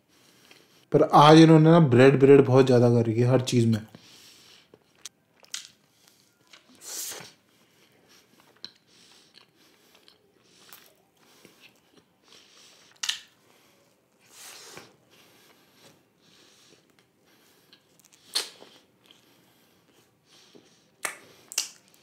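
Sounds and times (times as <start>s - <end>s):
close-miked chewing: 4.5s - 22.0s
bites and crunches: 5.0s - 5.9s, 17.9s - 19.2s.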